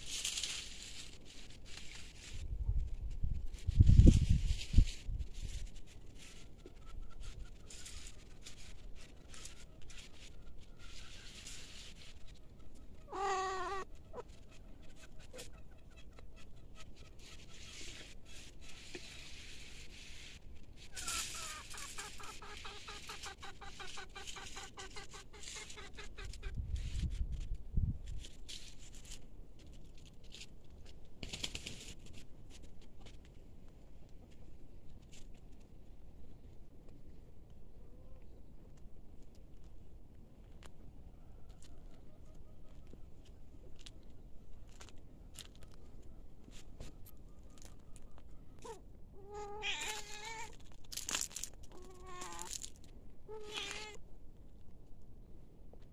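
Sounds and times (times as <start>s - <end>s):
steps rustling dry leaves: 0.0s - 14.6s, 17.2s - 30.7s, 42.8s - 48.2s, 49.6s - 54.0s
cat meowing: 13.1s - 13.9s, 48.6s - 50.6s, 51.7s - 52.5s, 53.3s - 54.0s.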